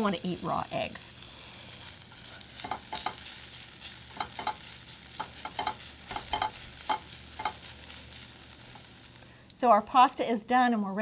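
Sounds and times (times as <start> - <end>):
meat sizzling in a skillet: 0.0 - 10.2
utensil tapping a pan: 2.6 - 3.3, 4.1 - 7.7.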